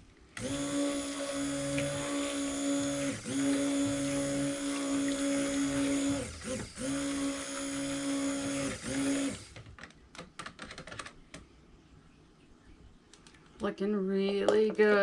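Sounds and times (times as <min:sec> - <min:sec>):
stick blender motor hum: 0:00.4 - 0:09.7.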